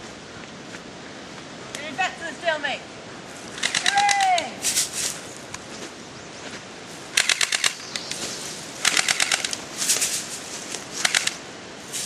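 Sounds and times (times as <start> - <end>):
airsoft gun automatic bursts: 3.6 - 4.3, 7.2 - 7.8, 8.8 - 9.6, 11.0 - 11.4.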